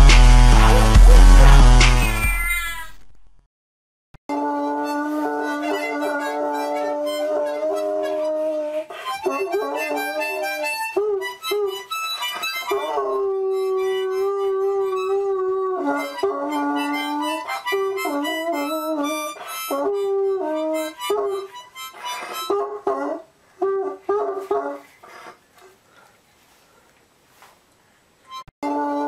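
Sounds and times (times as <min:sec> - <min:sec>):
harmonica chords: 0:00.0 - 0:02.5, 0:04.3 - 0:22.8, 0:28.3 - 0:29.0
dog howling: 0:04.3 - 0:24.8.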